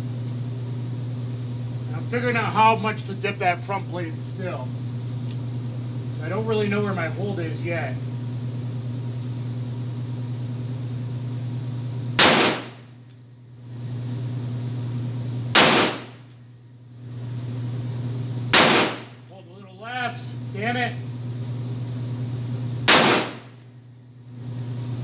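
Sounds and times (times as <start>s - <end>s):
steady low hum: 0.0s - 25.0s
revolver shots with echo: 12.2s - 12.8s, 15.6s - 16.2s, 18.6s - 19.2s, 22.9s - 23.5s.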